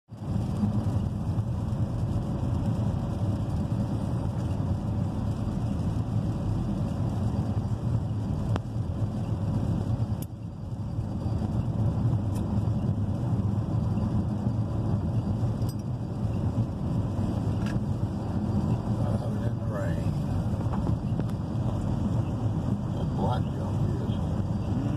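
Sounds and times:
car road noise on wet road: 0.1s - 24.9s.

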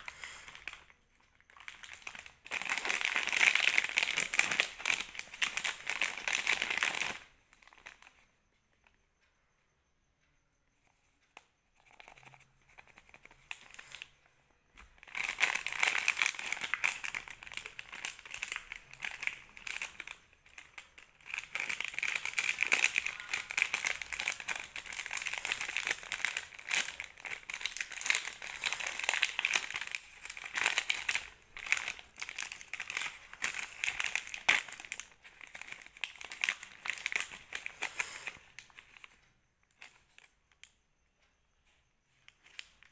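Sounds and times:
plastic bag crinkling: 0.0s - 8.1s, 14.8s - 40.3s.

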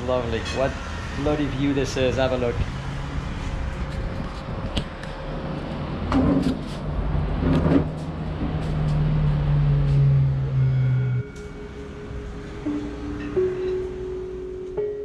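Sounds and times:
vehicle engine drone: 0.0s - 15.0s.

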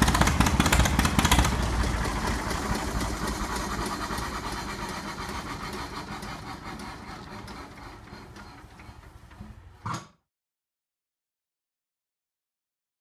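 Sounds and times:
old engine running: 0.0s - 9.4s.

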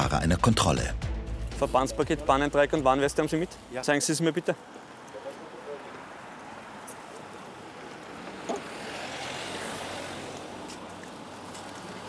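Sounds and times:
street traffic noise: 1.6s - 12.0s
car passing by: 3.5s - 12.0s.

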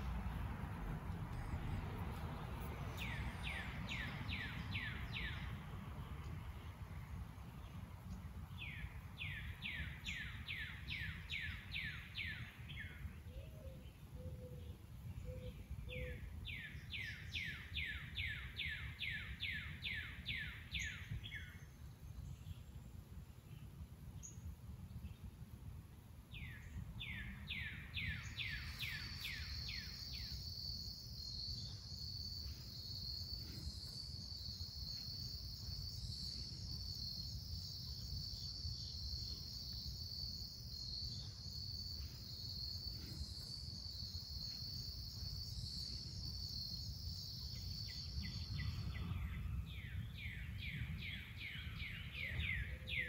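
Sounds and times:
low outdoor rumble: 0.0s - 9.2s
songbird singing: 0.0s - 53.0s.

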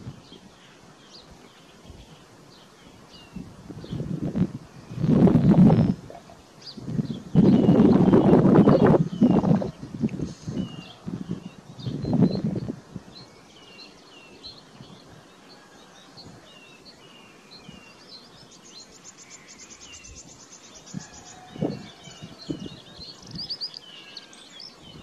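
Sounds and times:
small birds chirping: 0.0s - 25.0s
bird trill: 15.3s - 25.0s.

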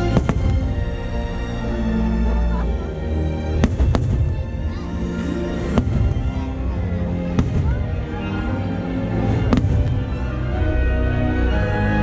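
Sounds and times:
music: 0.0s - 12.0s
fireworks cracking: 3.6s - 4.5s, 9.4s - 10.3s.

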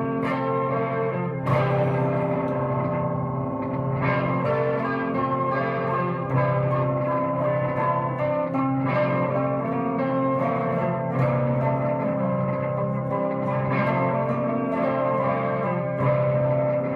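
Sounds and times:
electric guitar notes ringing: 0.0s - 16.9s.

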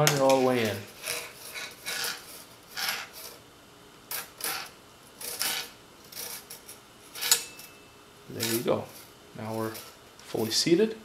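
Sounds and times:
spring scraping inside metal tube: 0.1s - 3.4s, 4.1s - 7.6s.

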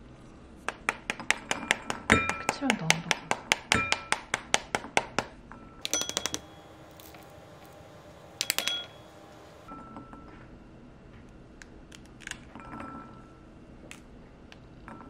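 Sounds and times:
fingers tapping pomegranate: 0.7s - 7.8s.

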